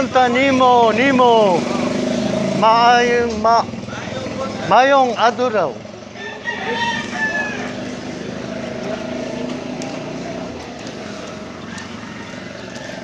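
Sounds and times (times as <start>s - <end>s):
street noise: 0.0s - 13.0s
vehicle engine humming: 0.0s - 13.0s
rooster crowing: 6.1s - 8.6s, 11.1s - 13.0s.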